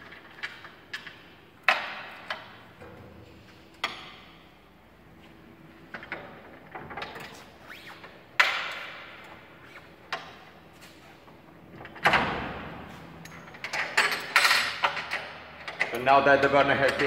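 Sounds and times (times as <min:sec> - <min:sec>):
metal clunks and knocks: 0:01.6 - 0:04.4.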